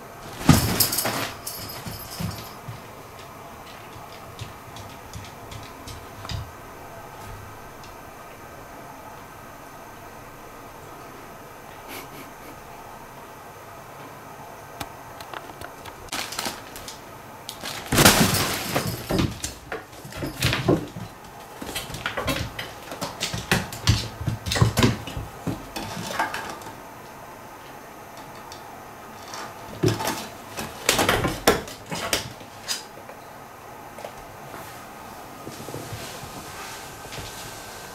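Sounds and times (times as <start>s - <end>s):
rustling nylon fabric: 16.1s - 19.1s, 34.5s - 37.9s.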